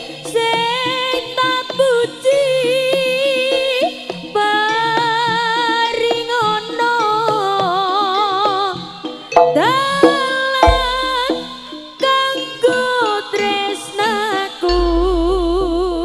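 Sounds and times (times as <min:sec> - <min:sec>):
drum strokes: 0:09.3 - 0:11.7
wavering held melody notes: 0:09.3 - 0:11.8.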